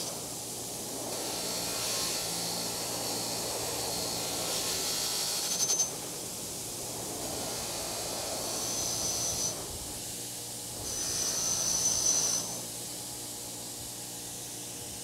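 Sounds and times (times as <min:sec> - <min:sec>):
wire wheel grinder spinning: 0:01.0 - 0:06.1, 0:06.8 - 0:09.7.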